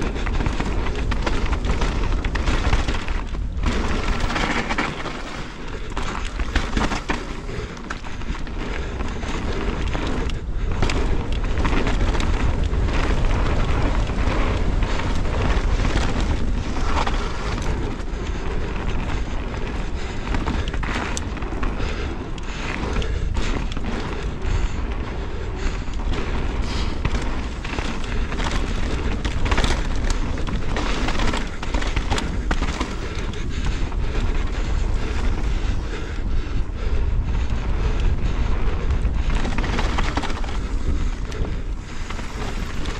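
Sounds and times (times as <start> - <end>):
tyres crunching on gravel: 0.0 - 33.3
bike knocking and rattling: 0.0 - 42.9
wind rumble on microphone: 0.0 - 42.9.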